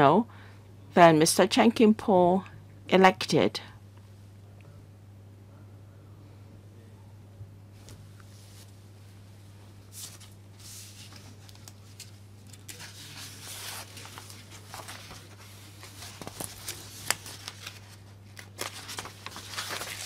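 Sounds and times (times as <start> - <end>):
steady low hum: 0.0 - 20.0
papers rustling: 9.9 - 20.0.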